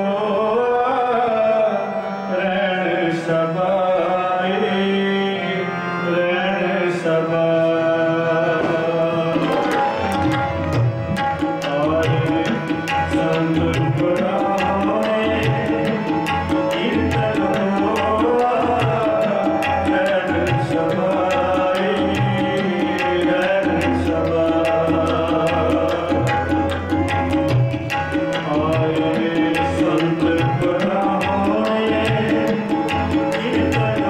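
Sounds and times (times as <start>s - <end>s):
harmonium chords: 0.0s - 34.0s
tabla playing a rhythm: 8.0s - 34.0s.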